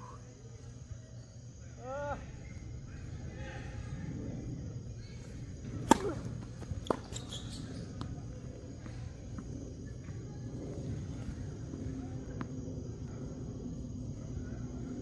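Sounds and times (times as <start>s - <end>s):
tennis ball struck by racket: 5.8s - 7.2s.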